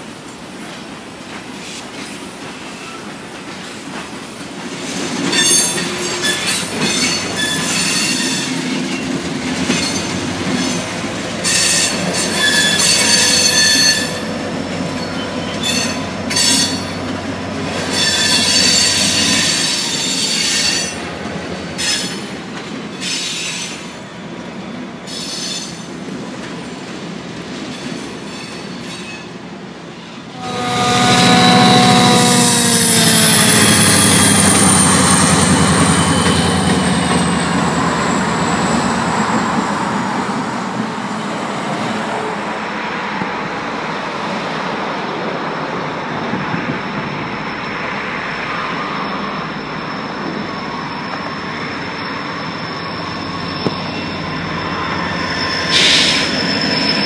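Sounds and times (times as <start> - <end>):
train cars rumbling: 0.8 - 43.2
freight train wheels squealing: 1.5 - 26.0, 27.6 - 41.8, 45.6 - 57.0
locomotive engine: 30.3 - 39.7.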